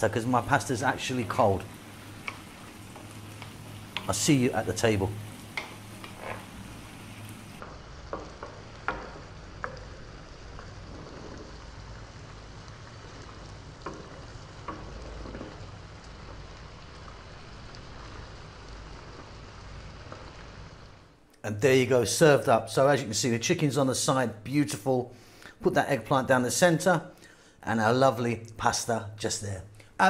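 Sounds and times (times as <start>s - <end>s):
pasta sizzling in a frying pan: 0.0s - 21.1s
wooden spoon knocking on pan: 2.2s - 4.2s, 5.5s - 6.4s, 8.1s - 10.0s, 13.8s - 15.6s.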